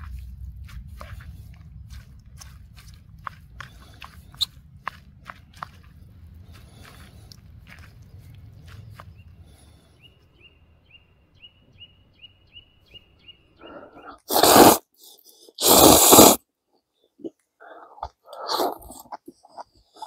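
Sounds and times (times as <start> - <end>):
small bird chirping: 5.2 - 14.8
sharp intake of breath: 13.6 - 16.4.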